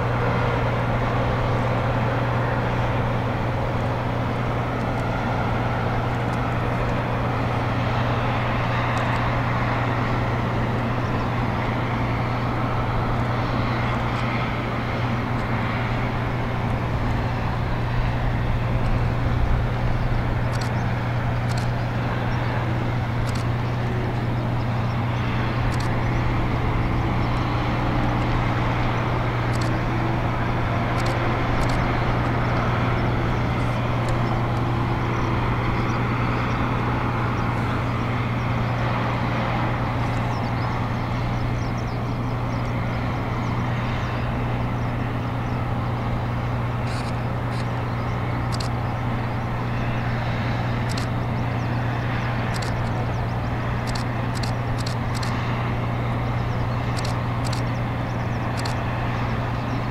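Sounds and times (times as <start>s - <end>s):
diesel engine droning: 0.0s - 59.9s
faint sharp clicks: 20.4s - 21.7s, 25.7s - 25.9s, 29.5s - 29.8s, 31.0s - 32.3s, 48.5s - 48.8s, 50.8s - 51.2s, 52.5s - 53.0s, 53.8s - 55.5s, 56.9s - 57.8s, 58.5s - 58.8s.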